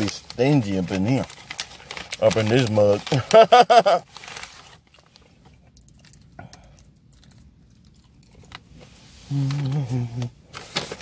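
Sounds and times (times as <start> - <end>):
paper bag crinkling: 0.0 - 6.2, 9.3 - 11.0
faint low hum: 0.0 - 10.9.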